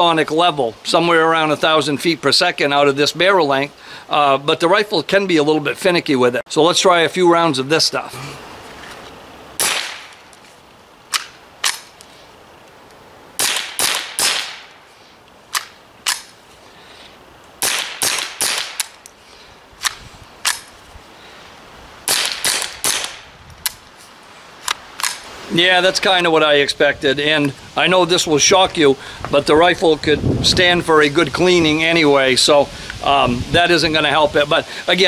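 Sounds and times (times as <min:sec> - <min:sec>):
suppressed rifle shots: 0:09.6 - 0:10.2, 0:13.4 - 0:14.8, 0:17.6 - 0:19.0, 0:22.1 - 0:23.2.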